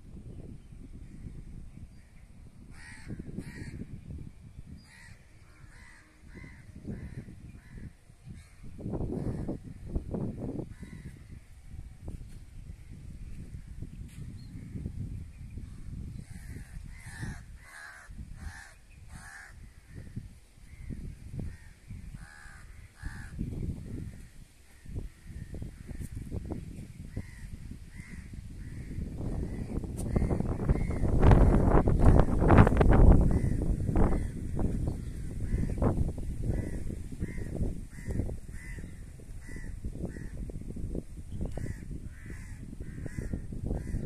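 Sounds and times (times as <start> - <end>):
crows cawing: 2.7 - 3.9, 4.8 - 8.6, 10.7 - 11.2, 16.3 - 20.1, 21.5 - 26.0, 27.1 - 32.5, 33.2 - 34.4, 36.5 - 40.4, 41.5 - 44.0.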